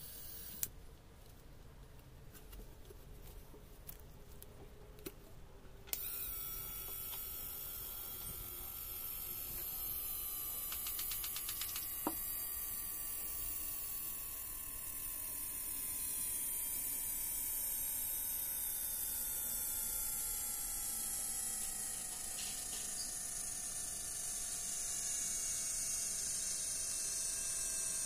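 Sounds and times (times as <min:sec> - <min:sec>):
electric motor hum and whine: 0:00.0 - 0:00.7, 0:05.9 - 0:28.0
sharp click: 0:10.7 - 0:12.2.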